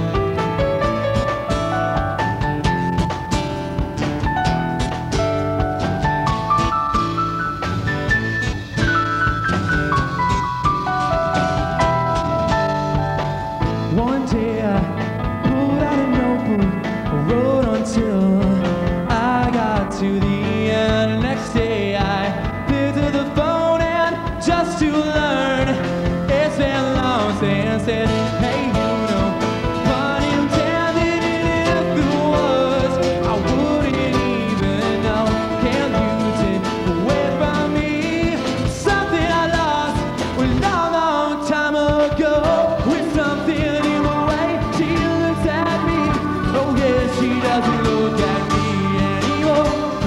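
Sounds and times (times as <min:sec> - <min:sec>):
acoustic guitar: 0:00.0 - 0:50.0
drums: 0:00.0 - 0:50.0
electric bass: 0:00.0 - 0:50.0
man singing: 0:13.8 - 0:50.0.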